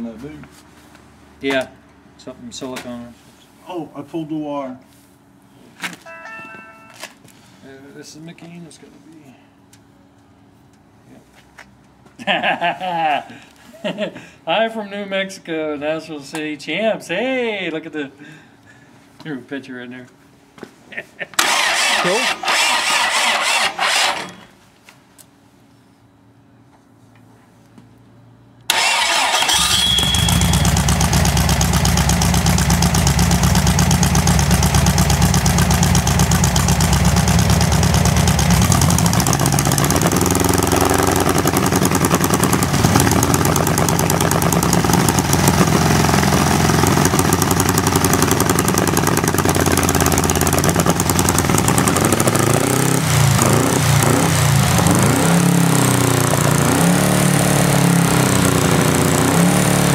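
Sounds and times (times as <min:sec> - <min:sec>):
small engine running: 0:21.4 - 0:24.5, 0:28.7 - 0:59.9.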